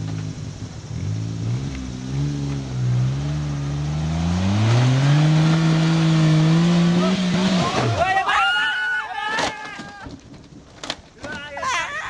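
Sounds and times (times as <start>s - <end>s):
off-road vehicle engine under load: 0.0s - 8.3s.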